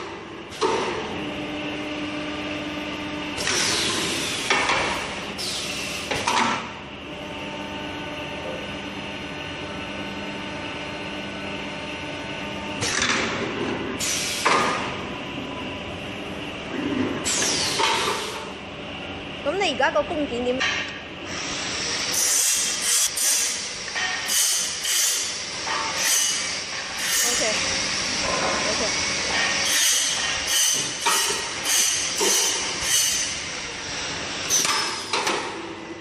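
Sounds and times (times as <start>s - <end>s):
machine hum: 0.0s - 36.0s
pneumatic hissing bursts: 5.4s - 6.2s, 14.0s - 14.6s, 17.2s - 18.4s, 21.3s - 25.4s, 26.0s - 27.5s.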